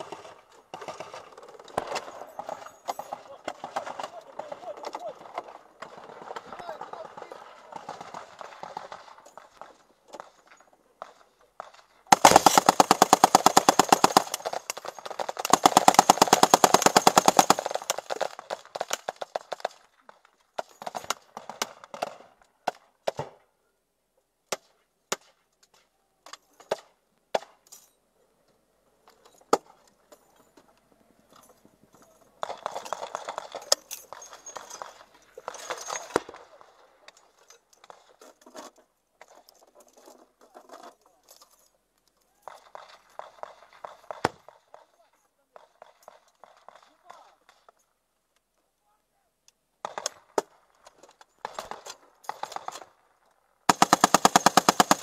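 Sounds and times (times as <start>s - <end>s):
heavy machine gun bursts: 12.1s - 18.2s, 53.7s - 55.0s
scattered gunshots: 12.1s - 18.4s, 53.7s - 55.0s.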